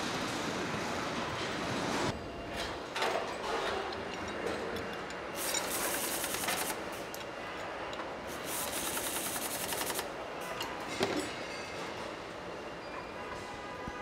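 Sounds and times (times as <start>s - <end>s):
rapid rattling and hiss: 5.4s - 6.8s, 8.3s - 10.1s.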